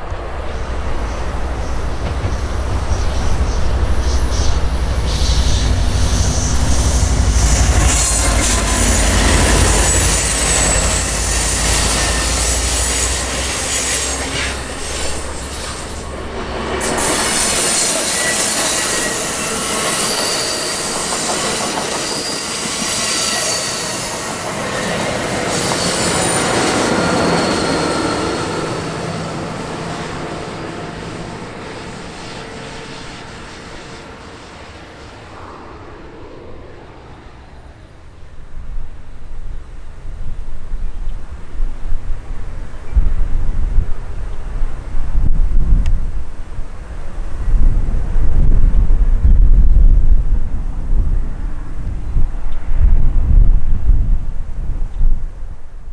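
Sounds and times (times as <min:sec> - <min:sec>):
train wheels rumbling on rail: 0:00.0 - 0:35.3
high wheel squeal: 0:00.0 - 0:38.2.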